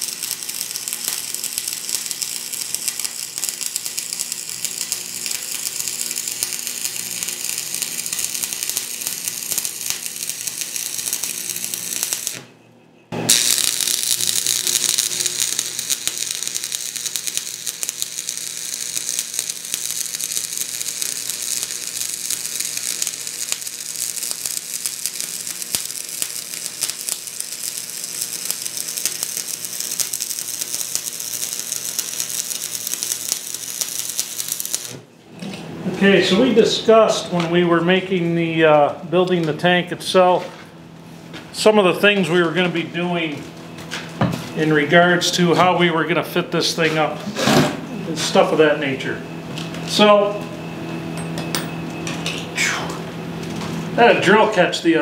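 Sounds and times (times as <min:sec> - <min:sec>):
arc welding crackle: 0:00.0 - 0:35.1, 0:41.5 - 0:47.5, 0:48.1 - 0:50.4, 0:53.3 - 0:55.0.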